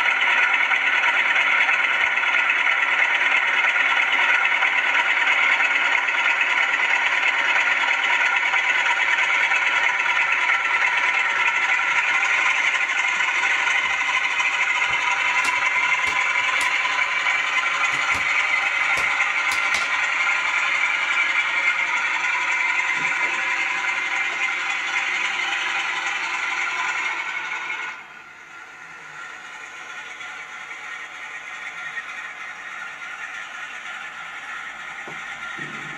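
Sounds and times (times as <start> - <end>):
wheels clicking over rail joints: 13.0 - 20.7
diesel engine sound through speaker: 28.3 - 35.9.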